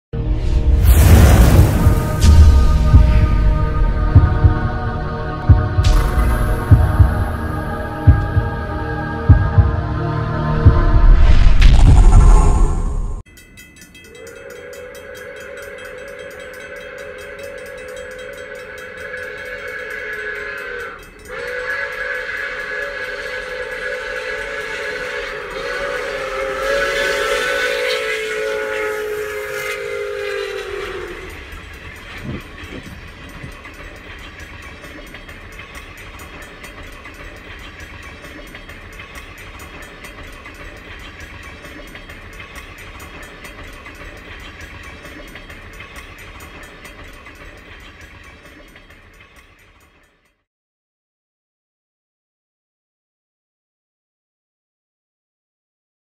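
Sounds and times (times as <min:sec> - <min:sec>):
train rumbling past: 0:00.2 - 0:50.3
steam locomotive whistle: 0:14.1 - 0:33.4.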